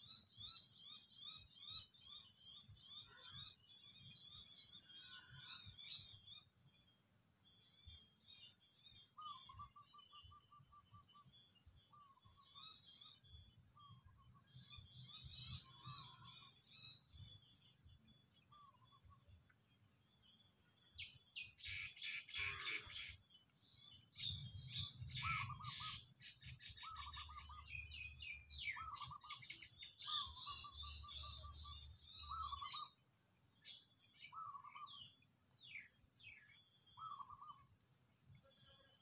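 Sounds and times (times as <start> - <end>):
high bird chirps and trills: 0.0 - 6.5, 20.9 - 33.0, 33.6 - 37.6
bird warbled call: 21.6 - 23.2, 24.8 - 33.0.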